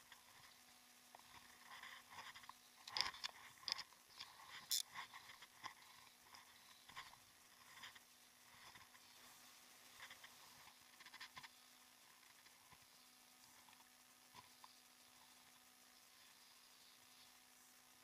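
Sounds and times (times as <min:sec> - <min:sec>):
fishing rod and reel clicks: 0:02.4 - 0:05.0.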